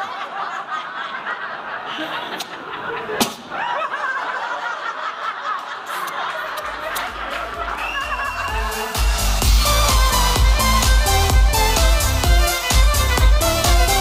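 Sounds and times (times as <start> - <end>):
audience laughing: 0.0 - 9.9
low bass beat music: 8.4 - 14.0.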